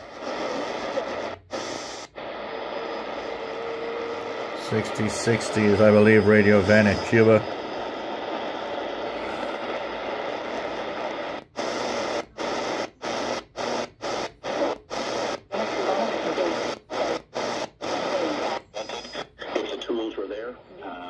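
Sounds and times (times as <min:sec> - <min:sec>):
shortwave radio static: 0:00.0 - 0:21.0
weak radio station: 0:00.0 - 0:21.0.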